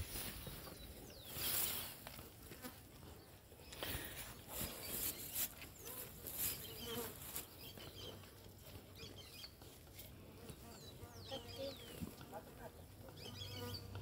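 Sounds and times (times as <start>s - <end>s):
rustling: 0.0s - 2.7s.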